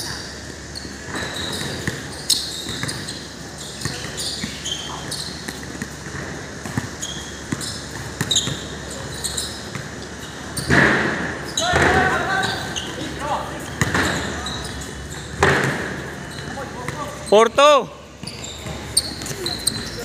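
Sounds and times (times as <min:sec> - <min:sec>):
shoe squeaks: 0:00.0 - 0:10.8, 0:11.4 - 0:20.0
basketball bouncing on a court: 0:00.0 - 0:17.2, 0:18.2 - 0:20.0
players' voices: 0:08.7 - 0:20.0.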